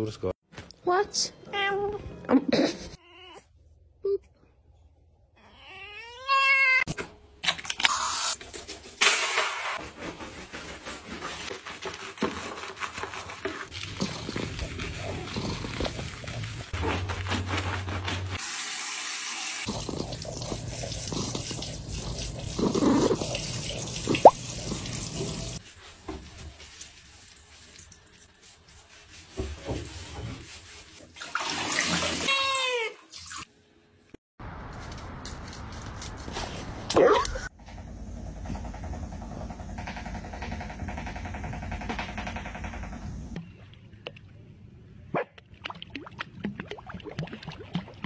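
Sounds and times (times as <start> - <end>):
cat meowing: 5.4 - 6.9
shower water splashing: 16.0 - 25.7, 30.4 - 32.3.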